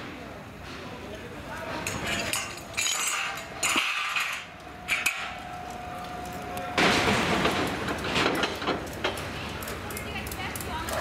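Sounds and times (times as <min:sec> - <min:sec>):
steel parts clattering: 0:01.7 - 0:05.7.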